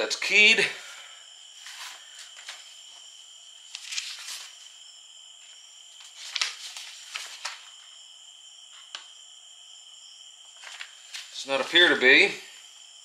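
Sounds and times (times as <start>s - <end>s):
crickets chirring: 0.0s - 13.0s
paper rustling: 1.6s - 3.0s, 3.6s - 4.8s, 5.4s - 8.0s, 10.5s - 12.4s.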